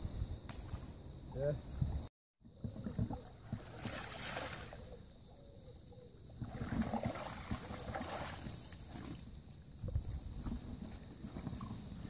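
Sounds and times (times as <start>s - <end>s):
water splashing off a sling: 2.6s - 5.0s, 6.4s - 9.4s.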